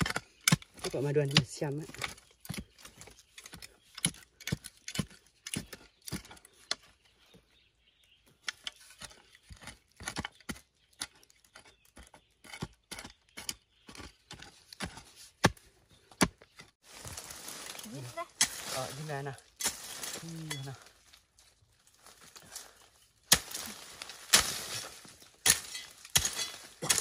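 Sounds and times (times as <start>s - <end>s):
hoe chopping dry soil: 0.0s - 6.9s, 8.5s - 17.3s, 17.9s - 20.9s, 22.0s - 27.0s.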